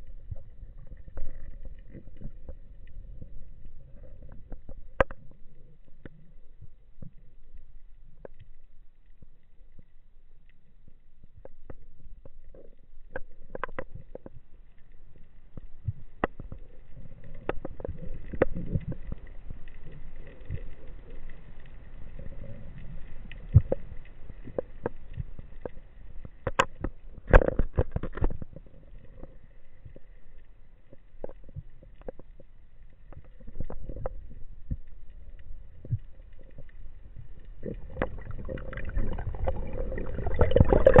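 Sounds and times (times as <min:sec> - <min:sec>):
muffled underwater rumble: 0:00.0 - 0:41.0.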